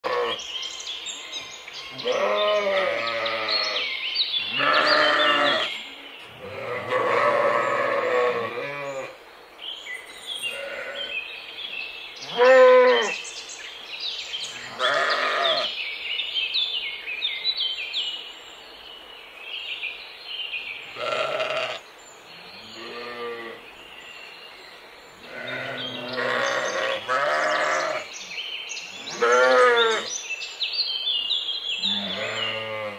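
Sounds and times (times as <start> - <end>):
sheep bleating: 0.0 - 0.4, 2.0 - 3.8, 4.5 - 5.7, 6.4 - 9.2, 10.5 - 11.1, 12.3 - 13.2, 14.5 - 15.7, 21.0 - 21.8, 22.8 - 23.6, 25.3 - 28.0, 29.1 - 30.1, 31.9 - 32.9.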